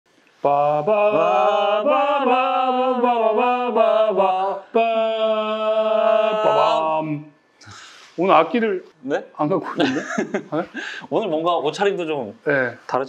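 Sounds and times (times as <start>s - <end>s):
man singing chant-like melody: 0.4s - 7.3s.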